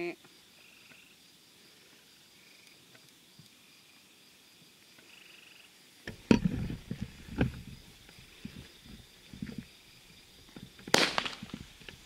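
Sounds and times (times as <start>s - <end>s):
night insects chirping: 0.0s - 12.0s
firework crackling pops: 10.7s - 12.0s
firework bangs: 10.8s - 11.8s.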